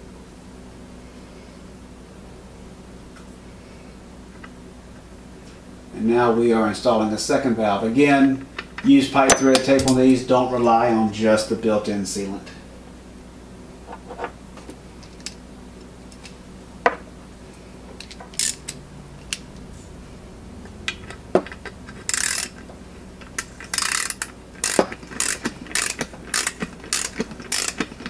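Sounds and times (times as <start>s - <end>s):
metal tools clicking: 8.8s - 10.2s, 18.0s - 19.4s, 20.9s - 22.6s, 23.2s - 28.0s
socket ratchet clicking: 18.0s - 19.4s, 21.0s - 22.6s, 23.2s - 28.0s.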